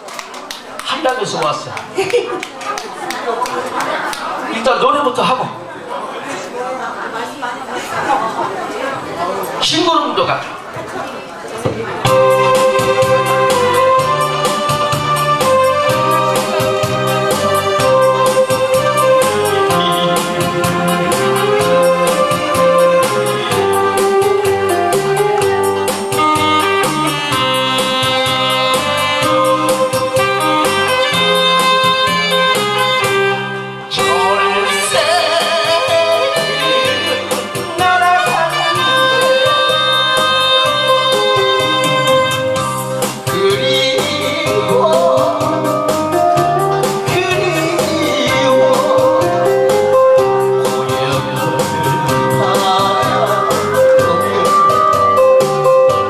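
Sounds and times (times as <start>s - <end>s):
instrumental backing music: 11.7s - 56.0s
man singing into microphone: 33.9s - 42.6s, 43.2s - 56.0s.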